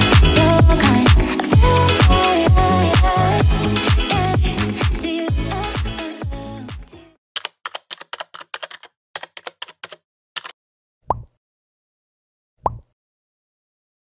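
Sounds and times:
keyboard key clicks: 7.4s - 10.6s.

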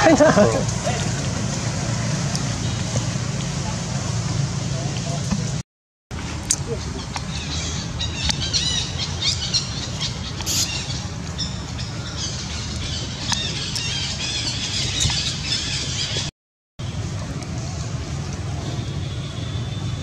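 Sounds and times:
baby monkey squealing: 10.4s - 10.9s.

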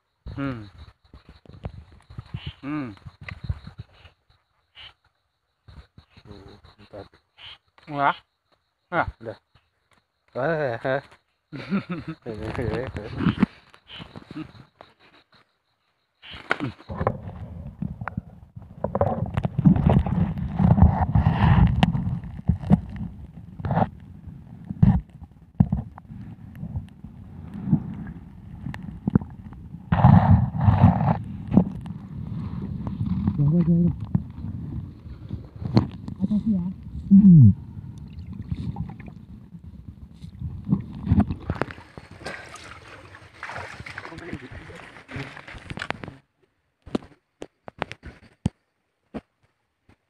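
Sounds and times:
underwater knocks and clicks: 16.9s - 34.8s, 38.0s - 42.4s
underwater rumbling of moving water: 16.9s - 46.0s.

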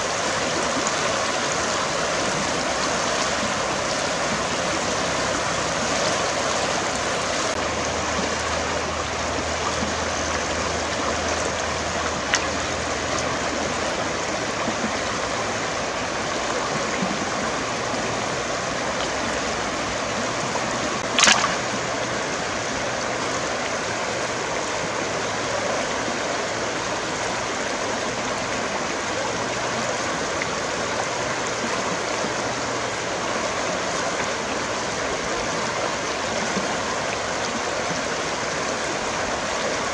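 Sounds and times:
water rushing over rocks: 0.0s - 39.9s
sharp knock: 21.2s - 21.7s.

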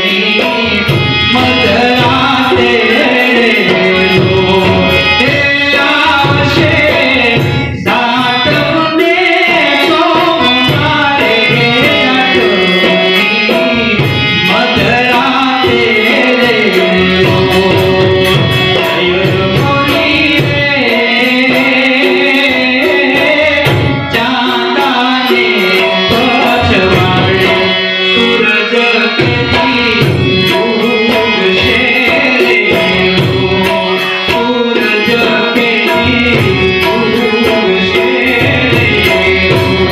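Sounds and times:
harmonium: 0.0s - 39.9s
man singing into a microphone: 0.0s - 39.9s
tabla: 0.0s - 39.9s.

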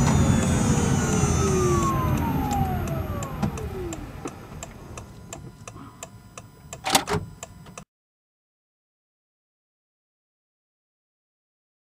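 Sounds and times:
gear shifter clunk: 0.0s - 5.8s
electric motor whining: 0.0s - 6.0s
turn signal ticking: 0.0s - 6.8s.

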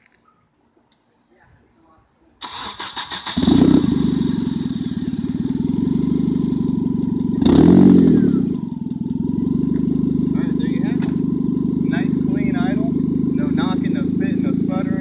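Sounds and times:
car engine starting and idling: 2.4s - 15.0s
engine revving: 2.4s - 15.0s.

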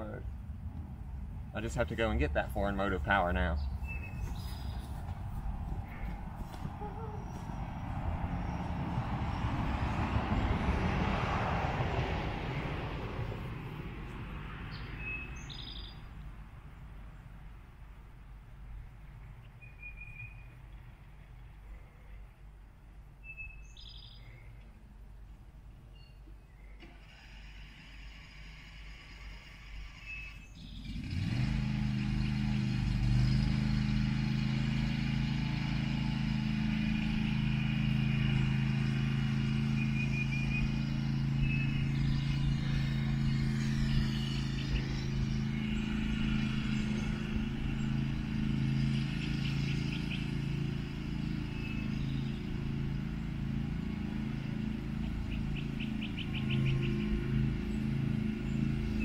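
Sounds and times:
birds chirping: 1.3s - 11.3s, 12.4s - 17.4s, 23.2s - 24.8s, 28.9s - 35.4s, 36.1s - 59.0s
lawn mower engine running: 26.8s - 59.0s.

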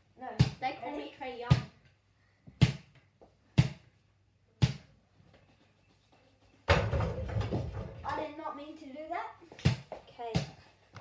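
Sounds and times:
ball bouncing on floor: 0.4s - 0.7s, 1.5s - 1.9s, 2.5s - 3.8s, 4.6s - 4.9s, 6.7s - 8.3s, 9.5s - 11.0s
ball hitting backboard and rim: 6.7s - 8.0s.

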